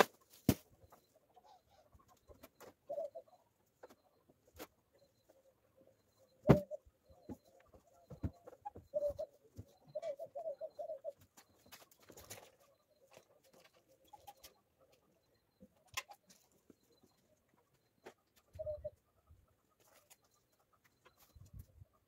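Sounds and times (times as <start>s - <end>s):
pigeons cooing: 1.4s - 3.5s, 6.4s - 12.5s, 18.4s - 19.0s.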